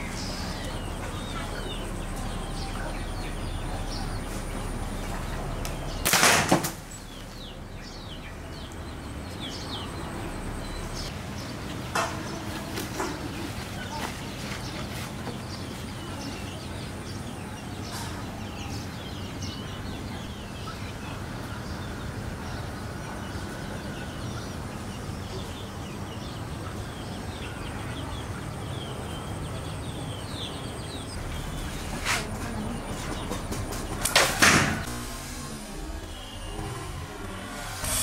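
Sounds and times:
steady low hum: 0:00.0 - 0:11.9, 0:30.6 - 0:38.0
birds chirping: 0:00.0 - 0:38.0.

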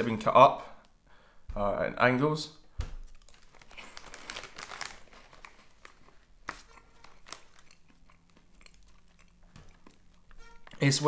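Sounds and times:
snack packet crinkling: 0:03.0 - 0:11.0.

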